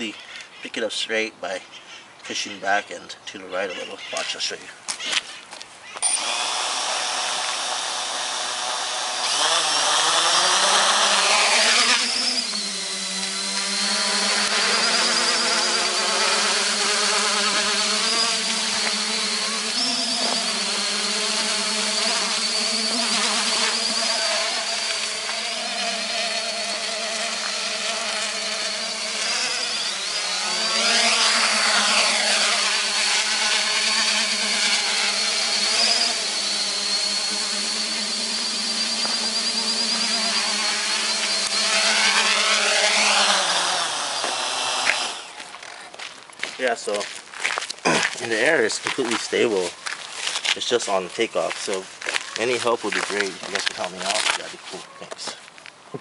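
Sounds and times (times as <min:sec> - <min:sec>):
quadcopter motors buzzing: 0:04.9 - 0:46.1, 0:46.8 - 0:55.4.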